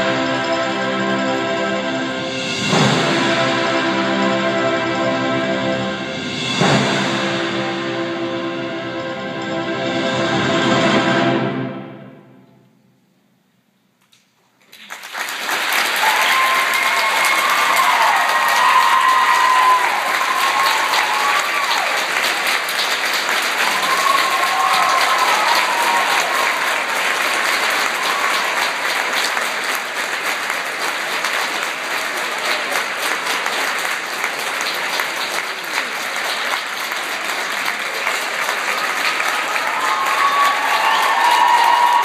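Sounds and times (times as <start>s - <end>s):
large audience applauding: 14.6s - 42.0s.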